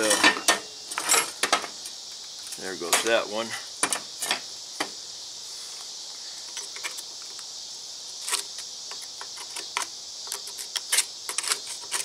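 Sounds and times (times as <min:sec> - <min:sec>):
steady high hiss: 0:00.0 - 0:12.0
screwdriver clicking and scraping metal: 0:08.2 - 0:12.0.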